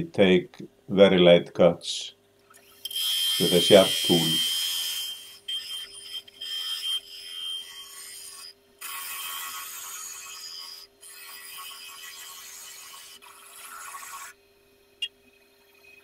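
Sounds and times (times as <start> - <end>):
hiss of wood being cut: 2.8 - 14.3.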